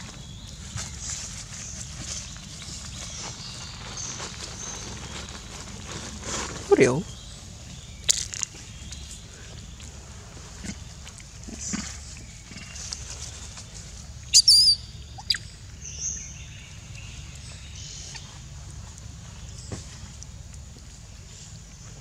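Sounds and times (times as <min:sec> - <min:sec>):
falling chirp: 0:14.3 - 0:15.5
high-pitched animal squeaks: 0:14.4 - 0:15.4.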